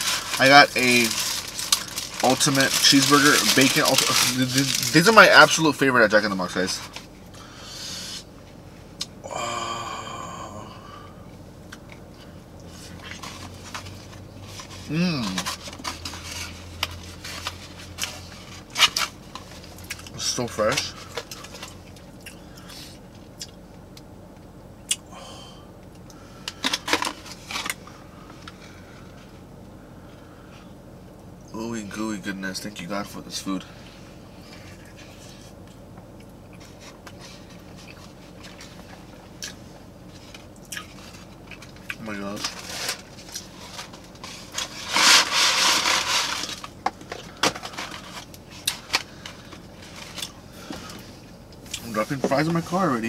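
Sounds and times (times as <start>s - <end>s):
paper carton rustling: 0.0s - 5.2s.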